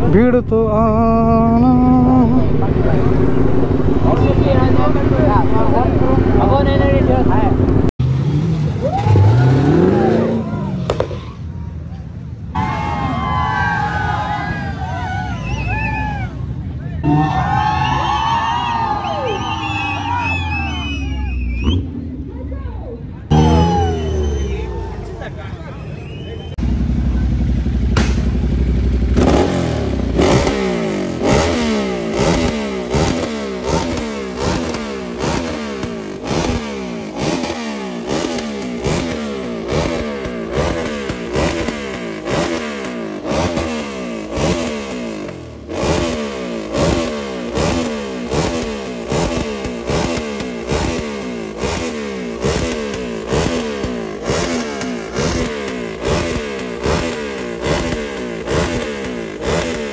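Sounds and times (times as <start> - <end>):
motorcycle engine revving: 0.7 - 11.4, 23.2 - 25.3, 26.1 - 59.9.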